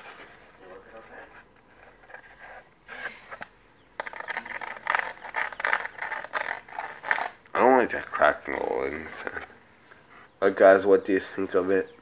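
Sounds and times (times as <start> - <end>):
board scraping and rustling: 0.0 - 7.4.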